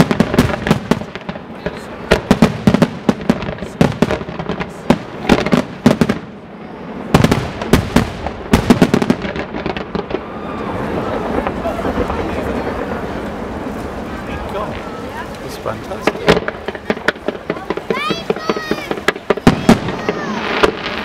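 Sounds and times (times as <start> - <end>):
firework comets launching: 0.0 - 21.0
firework shells bursting: 14.7 - 21.0.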